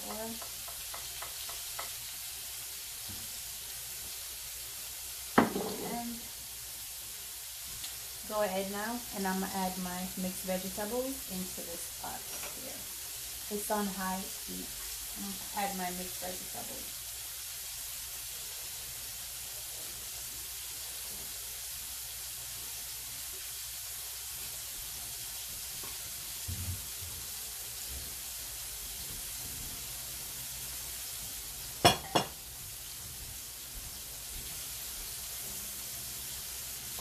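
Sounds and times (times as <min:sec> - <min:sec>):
hot oil sizzling: 0:00.0 - 0:37.0.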